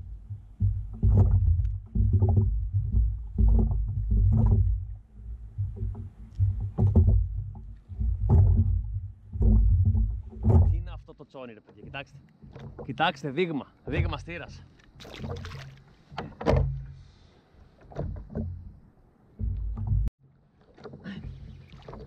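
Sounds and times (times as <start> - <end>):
thuds on plastic kayak hull: 0.0 - 11.0, 15.0 - 17.0.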